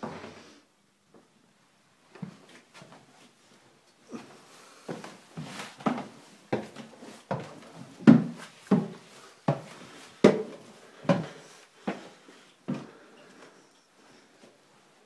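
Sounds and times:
footsteps on wooden stairs: 4.9s - 12.1s.

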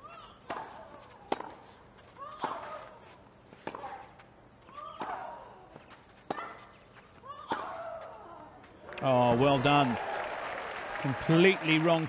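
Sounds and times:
tennis ball hit by racket: 0.4s - 1.7s, 3.6s - 4.1s.

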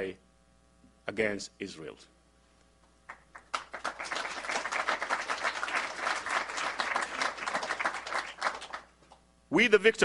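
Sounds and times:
audience applauding: 3.1s - 8.9s.

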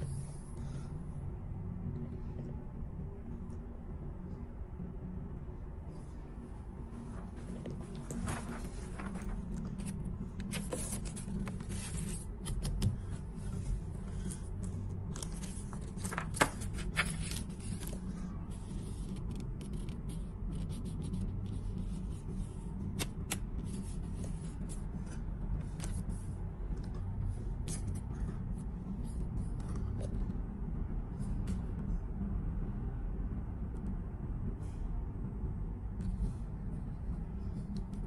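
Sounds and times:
paper rustling and scraping: 7.1s - 20.1s.

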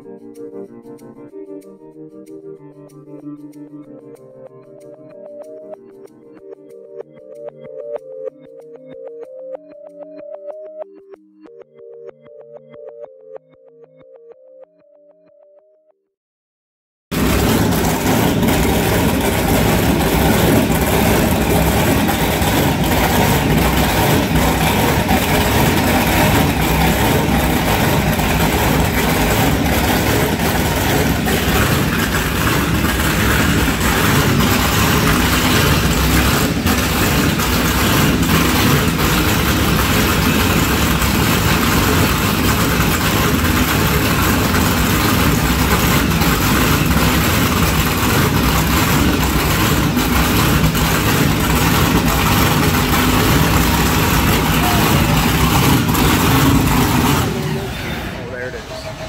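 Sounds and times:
powerboat engines idling: 17.1s - 59.0s.

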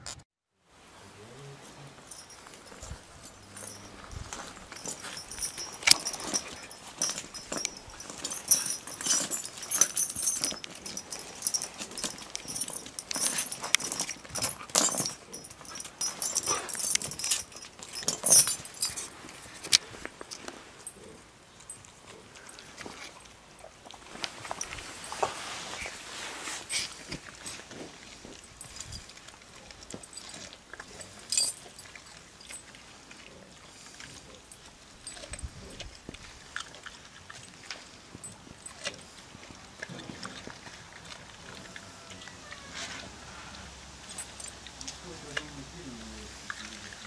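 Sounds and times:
dog gnawing and snuffling: 1.2s - 47.0s
metal chain clinking: 1.6s - 23.4s, 24.1s - 39.2s, 44.0s - 46.0s
sharp rattle: 2.1s - 19.7s.

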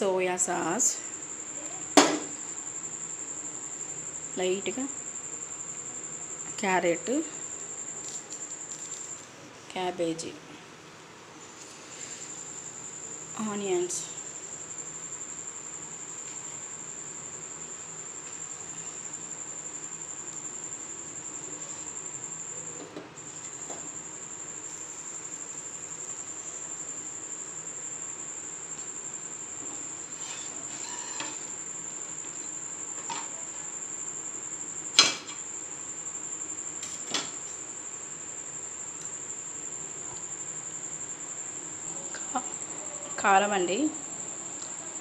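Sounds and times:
metal spatula scraping on pan: 30.0s - 31.6s.

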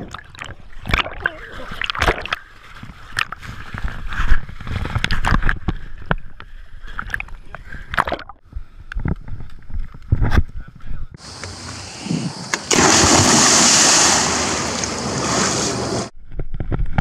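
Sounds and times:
water splashing against plastic drums: 0.0s - 4.0s, 12.5s - 16.1s.

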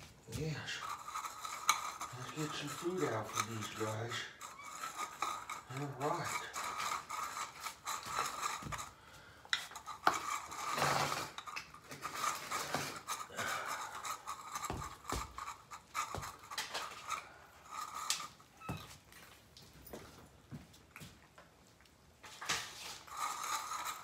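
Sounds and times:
rustling clatter: 0.0s - 20.2s, 22.2s - 24.0s.

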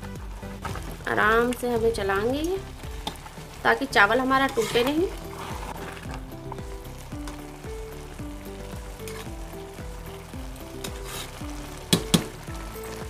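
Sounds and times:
soft sizzle of simmering pot: 0.0s - 13.0s
metal spoon stirring rice in pot: 2.9s - 6.2s.

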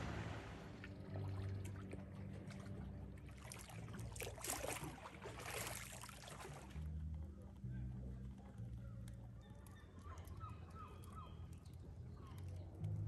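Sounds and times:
distant motorboat engine drone: 0.0s - 12.8s
faint crackling ticks: 7.0s - 13.0s.

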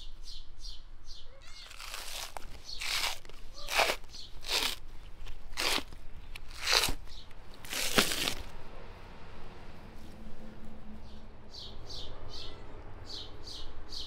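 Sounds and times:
membrane tearing: 1.6s - 8.5s.

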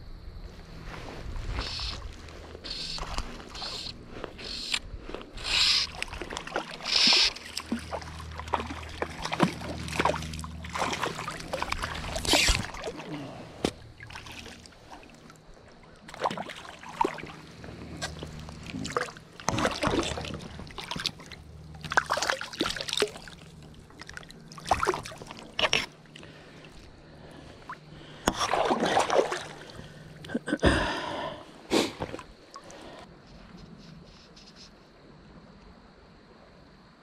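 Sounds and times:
creek water splashing: 1.0s - 30.4s.

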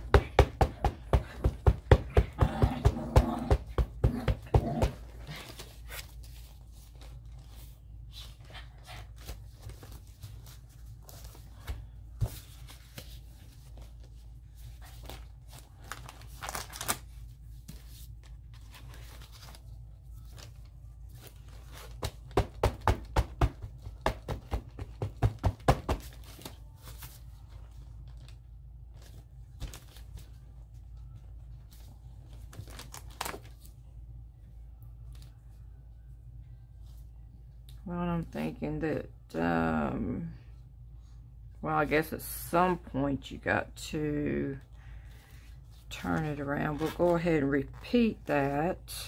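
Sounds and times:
paper tearing and crinkling: 14.8s - 22.2s, 32.5s - 33.7s.

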